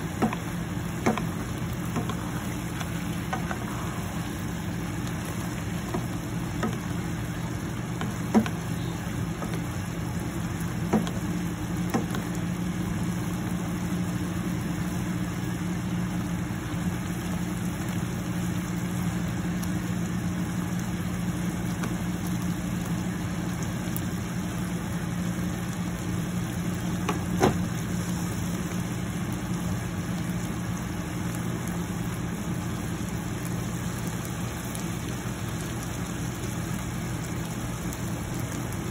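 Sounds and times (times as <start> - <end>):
low machine hum: 0.0 - 38.9
shrimp sizzling in a pan: 0.0 - 38.9
spatula knocking on pan: 0.1 - 2.3, 10.9 - 11.2.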